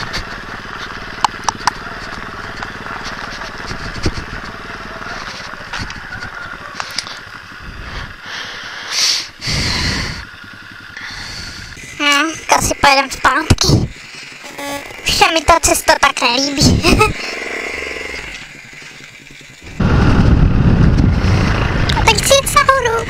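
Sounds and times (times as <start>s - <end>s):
motorbike engine running: 0.0s - 23.0s
loud rushing noise bursts: 19.6s - 22.1s.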